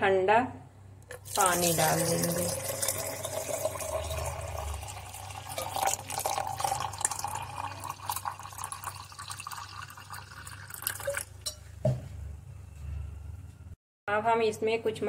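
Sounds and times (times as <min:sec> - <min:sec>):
water pouring into a jar: 0:01.1 - 0:11.4.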